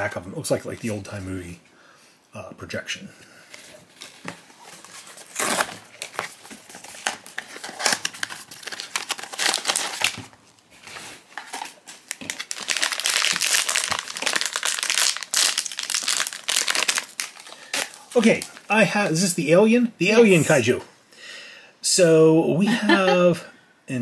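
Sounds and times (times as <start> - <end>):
foil pouch crinkling: 3.9 - 18.7.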